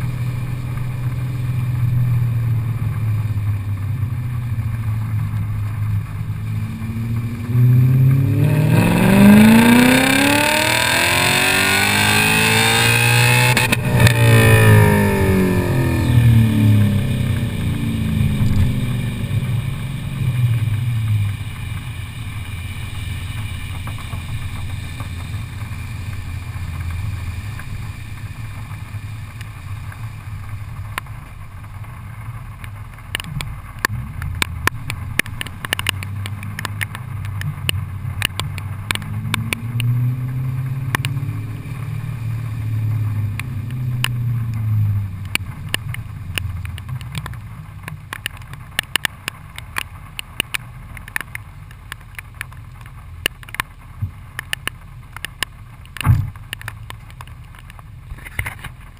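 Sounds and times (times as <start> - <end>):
car engine through exhaust: 0.0 - 58.9
tyre spray on wet road: 0.0 - 58.9
sharp clicks: 45.2 - 58.8.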